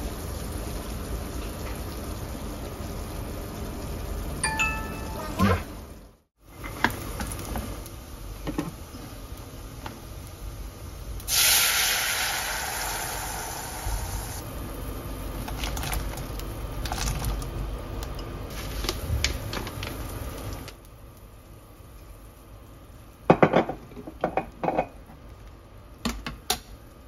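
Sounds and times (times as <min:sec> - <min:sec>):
boiling water pouring hiss: 0:06.4 - 0:25.4.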